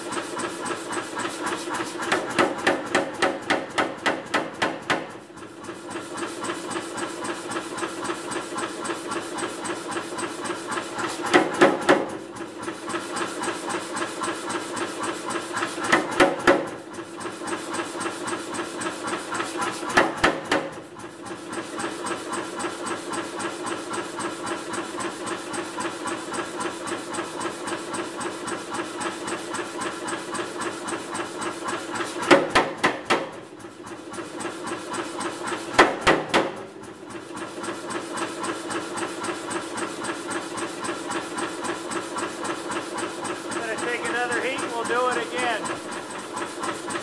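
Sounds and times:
power hammer droning: 0:43.6 - 0:45.8.

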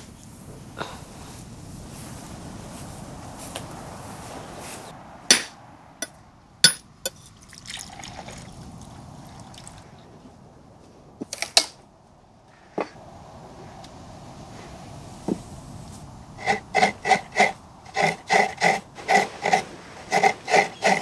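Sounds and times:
water trickling into a glass: 0:07.4 - 0:09.8.

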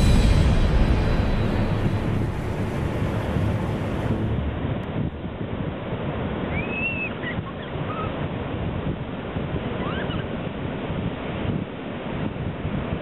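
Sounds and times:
sea surf breaking: 0:00.0 - 0:06.4.

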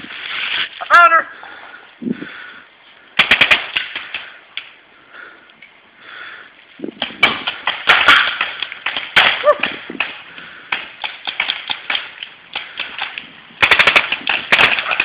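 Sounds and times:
paintball markers firing: 0:03.2 - 0:04.2, 0:07.0 - 0:15.0.

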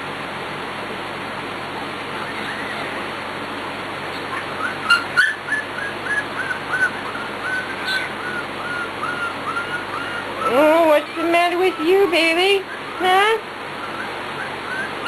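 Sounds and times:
puppy whining: 0:02.1 - 0:03.1, 0:04.2 - 0:13.2, 0:13.8 - 0:15.0.

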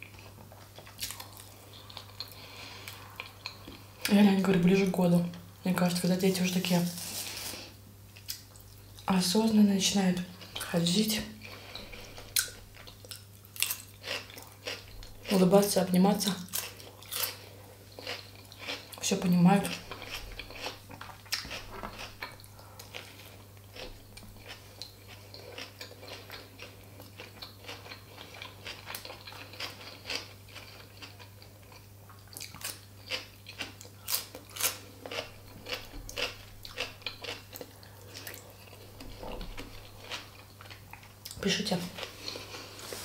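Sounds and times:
low electrical hum: 0:00.0 - 0:43.0
chewing and biting food: 0:11.4 - 0:15.4, 0:16.5 - 0:19.0, 0:19.6 - 0:41.4.

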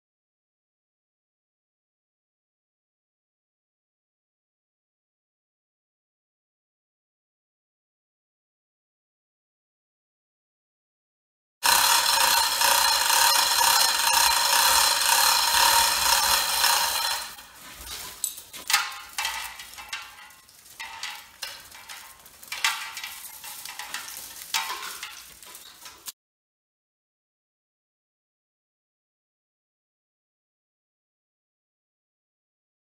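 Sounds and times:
hoist chain rattling and clicking: 0:11.6 - 0:26.1
wire scraping and rustling: 0:11.6 - 0:26.2.

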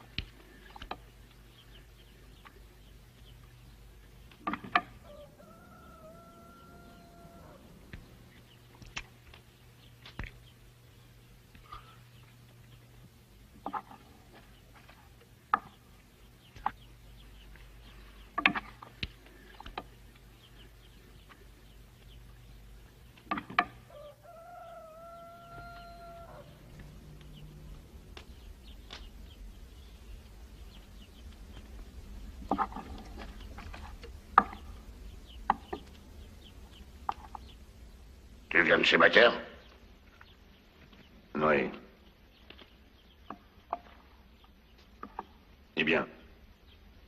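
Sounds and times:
rooster crowing: 0:04.9 - 0:07.9, 0:23.8 - 0:27.8.

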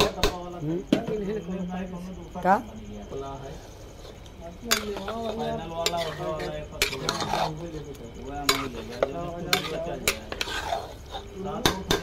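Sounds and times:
metal spatula scraping a pot: 0:03.5 - 0:12.0.

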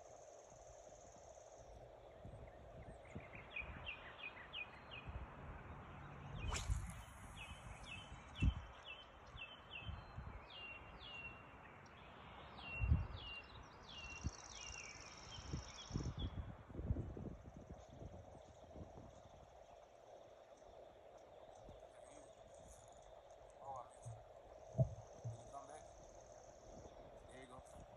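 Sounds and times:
outdoor background noise: 0:00.0 - 0:27.9
sharp swish: 0:06.4 - 0:07.5
dull bumps on microphone: 0:24.8 - 0:25.6.

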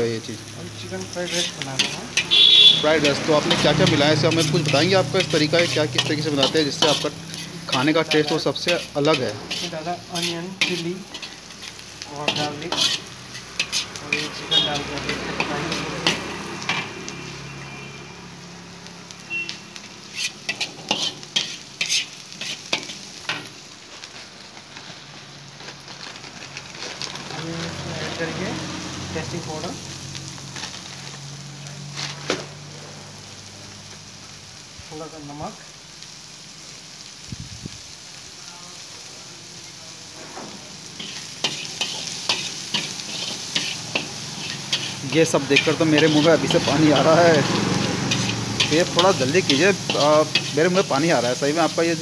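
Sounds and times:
food sizzling in a wok: 0:00.0 - 0:52.0
metal spatula scraping wok: 0:00.8 - 0:18.0, 0:19.3 - 0:24.0, 0:40.0 - 0:52.0.

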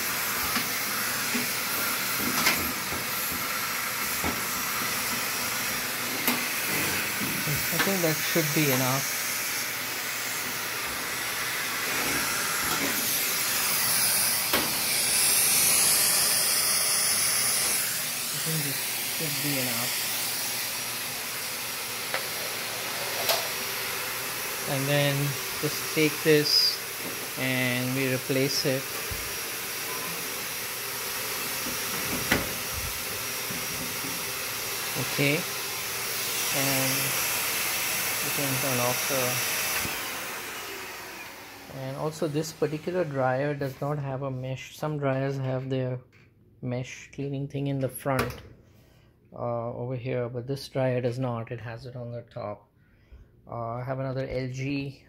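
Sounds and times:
vacuum cleaner hose hissing: 0:00.0 - 0:43.9.

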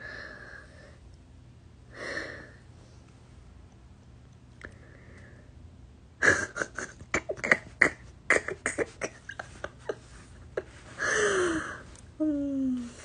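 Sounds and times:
woman laughing: 0:06.2 - 0:07.8, 0:08.4 - 0:11.6.

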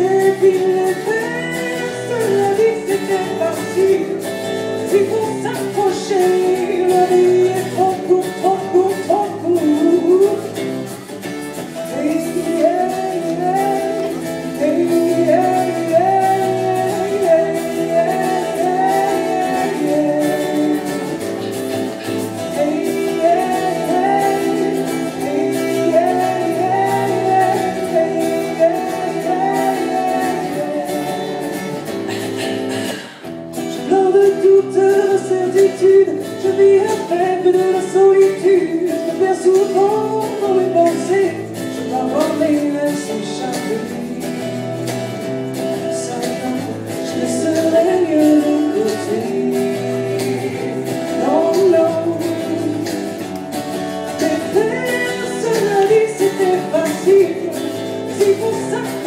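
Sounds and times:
acoustic guitar strumming: 0:00.0 - 0:59.0
woman singing: 0:11.9 - 0:21.2, 0:22.5 - 0:31.5, 0:46.0 - 0:53.2, 0:54.2 - 0:59.0.

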